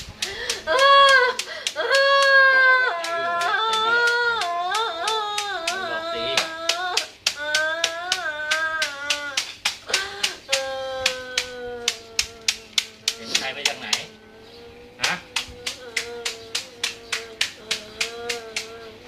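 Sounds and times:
sharp hand claps: 0.2s - 14.1s, 15.0s - 18.8s
high voice wailing: 1.8s - 9.4s, 10.5s - 19.0s.

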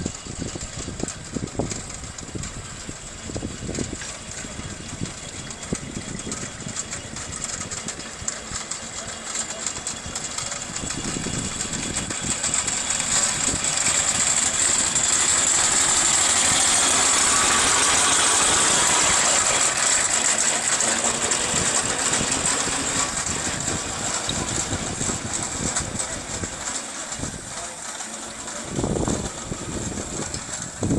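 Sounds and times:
steam engine running past: 0.0s - 30.9s
steam hiss: 10.4s - 30.9s.

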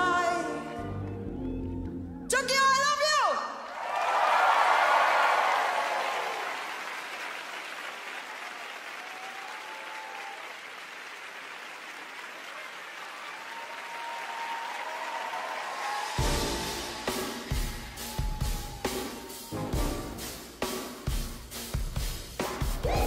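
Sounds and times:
audience applauding and cheering: 3.6s - 20.8s
high voices wavering: 22.8s - 23.0s.

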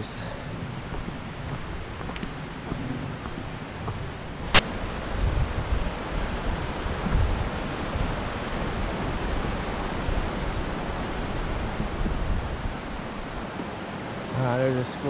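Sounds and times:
wind buffeting microphone: 0.0s - 14.4s
stream water rushing over rocks: 4.4s - 15.0s.

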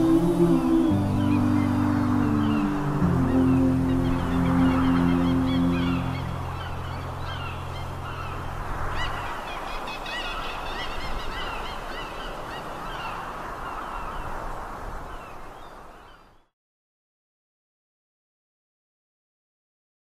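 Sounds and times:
low sustained music notes: 0.0s - 9.3s
flock of birds calling: 0.0s - 14.4s.

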